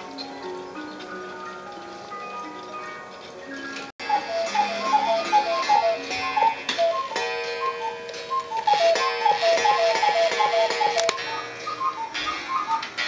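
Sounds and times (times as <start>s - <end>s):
cuckoo clock call: 0.0s - 13.0s
clock ticking: 4.0s - 13.0s.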